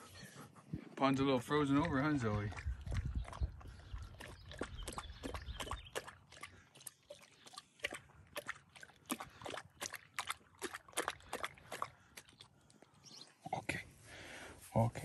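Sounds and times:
dog lapping water: 0:01.4 - 0:12.8.

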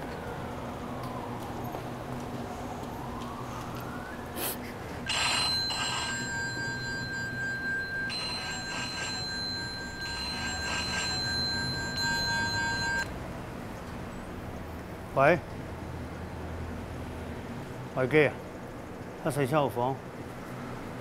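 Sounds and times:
mobile phone electronic ringtone: 0:05.1 - 0:13.1.

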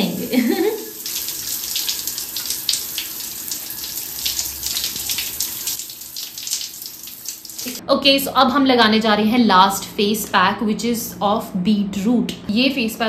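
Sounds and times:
shower spray splashing: 0:00.0 - 0:07.8.

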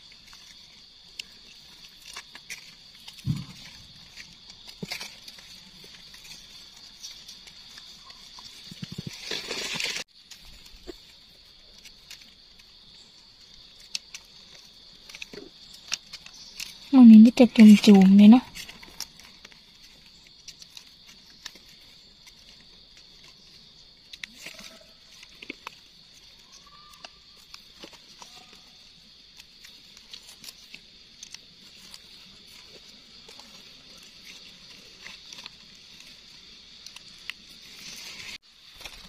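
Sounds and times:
dry leaf litter rustling: 0:00.0 - 0:39.0.

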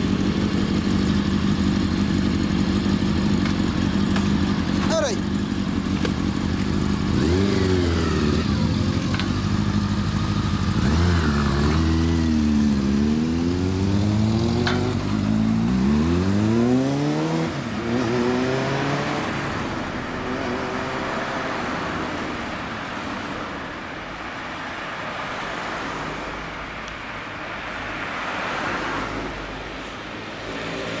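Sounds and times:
motorcycle engine revving: 0:00.0 - 0:21.6
street traffic passing: 0:00.0 - 0:31.0.

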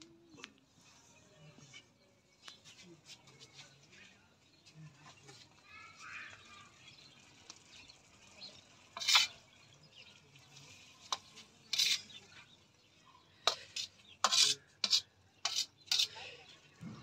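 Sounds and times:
spatula scraping metal wok: 0:08.9 - 0:09.4, 0:10.6 - 0:12.5, 0:13.4 - 0:16.4.

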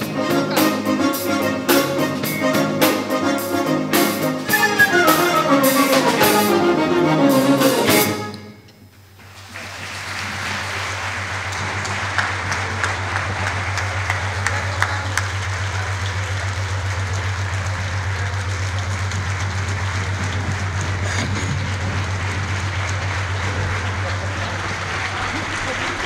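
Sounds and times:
audience applause: 0:00.0 - 0:08.3, 0:09.2 - 0:26.0
orchestra and choir music: 0:00.0 - 0:08.8.

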